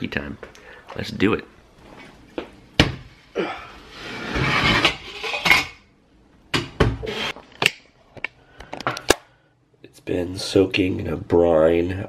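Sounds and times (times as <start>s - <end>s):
pot scraping on countertop: 3.9s - 5.8s.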